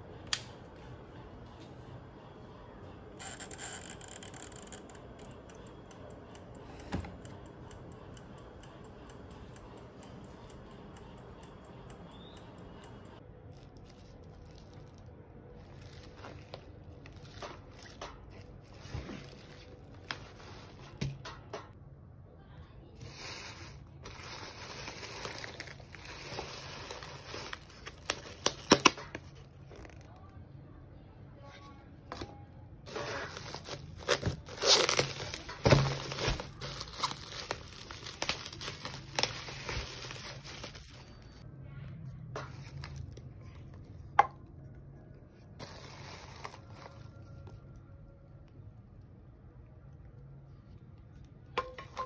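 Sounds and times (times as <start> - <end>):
mechanical timer ticking: 4.9 - 13.2
bubble wrap and paper rustling: 13.5 - 21.0, 23.0 - 30.1, 32.9 - 41.4, 45.6 - 47.6.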